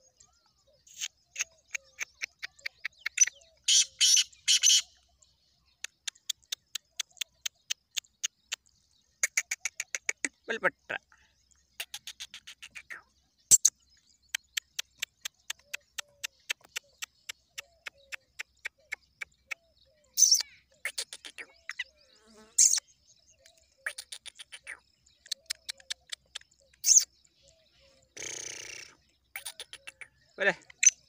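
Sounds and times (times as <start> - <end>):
chick ticking clicks: 0.9 - 3.4, 5.8 - 10.4, 11.8 - 19.6, 20.3 - 21.8, 23.4 - 27.1, 28.2 - 31.0.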